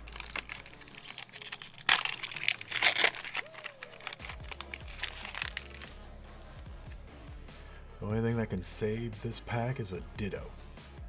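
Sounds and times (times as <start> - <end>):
foil wrapper tearing and crinkling: 0.0 - 6.0
quiet background music: 0.0 - 11.0.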